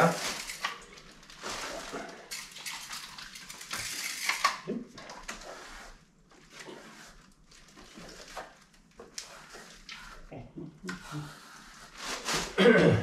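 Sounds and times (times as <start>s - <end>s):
trowel scraping plaster: 10.9s - 12.6s.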